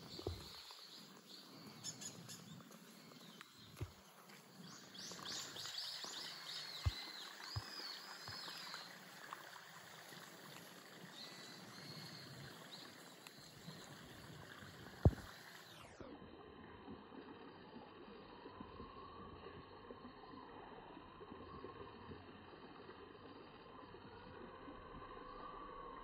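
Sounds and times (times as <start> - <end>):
birds chirping: 0.0 - 15.9
steady outdoor hiss: 0.0 - 26.0.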